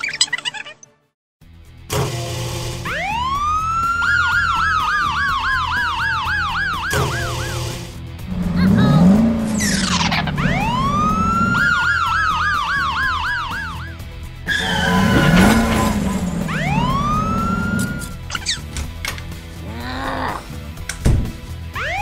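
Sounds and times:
low background music: 1.5s - 22.0s
police siren wailing and yelping: 2.9s - 7.7s, 8.3s - 18.5s, 21.8s - 22.0s
swooping sound: 8.2s - 12.6s, 14.5s - 18.5s.

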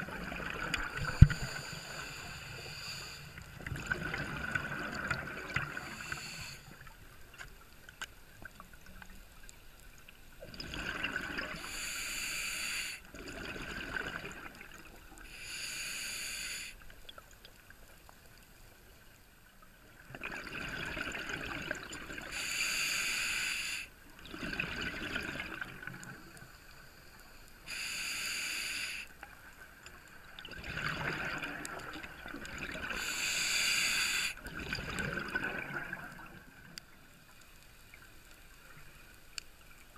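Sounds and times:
rush of bubbles: 0.0s - 1.8s, 3.6s - 6.2s, 10.4s - 11.7s, 13.1s - 14.9s, 20.1s - 22.3s, 24.2s - 26.2s, 30.4s - 33.2s, 34.4s - 36.7s
regulator hissing on inhale: 1.0s - 3.6s, 5.8s - 6.9s, 11.5s - 13.1s, 15.2s - 17.0s, 22.3s - 24.0s, 26.4s - 29.3s, 32.9s - 34.4s.

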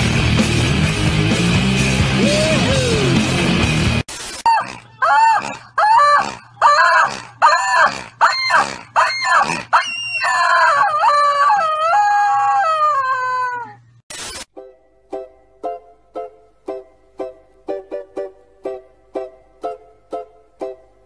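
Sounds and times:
rubber chicken toy squawking: 4.4s - 13.8s.

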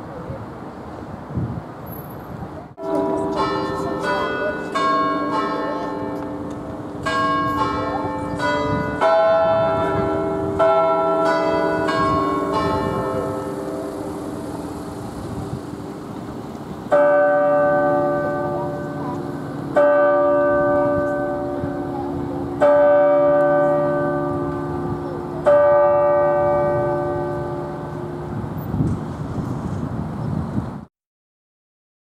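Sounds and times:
clock tower bells chiming tune: 2.8s - 28.3s.

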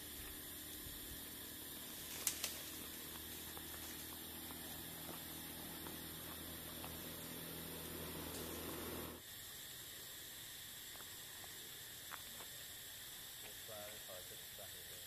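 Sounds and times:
low hum: 0.0s - 9.2s.

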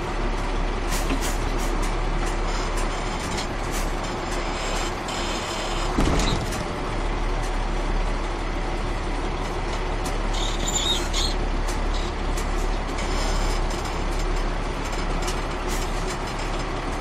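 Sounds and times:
diesel truck engine running: 0.0s - 17.0s
loud thump: 6.0s - 6.8s.

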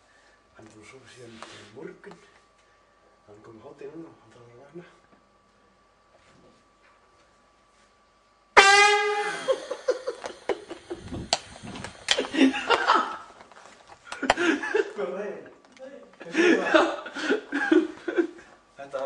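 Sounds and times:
air horn blast: 8.6s - 9.6s
people laughing: 9.3s - 11.1s, 12.1s - 13.4s, 14.1s - 15.2s, 16.2s - 18.5s.

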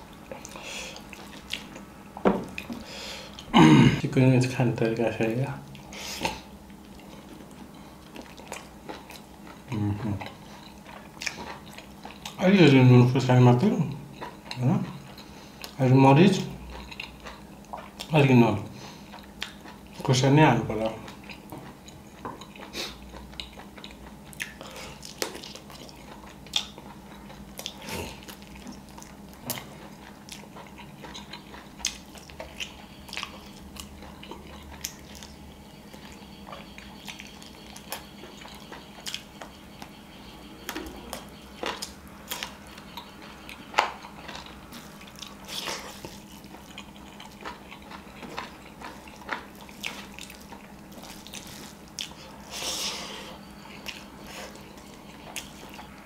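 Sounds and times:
faint steady hum: 0.0s - 56.0s
wet chewing: 5.7s - 12.4s, 16.6s - 18.1s, 18.9s - 20.1s, 20.8s - 56.0s.

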